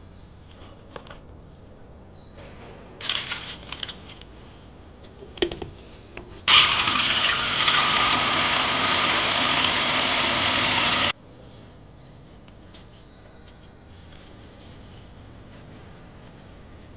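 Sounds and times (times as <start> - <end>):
tap water running into tray: 6.5 - 11.1.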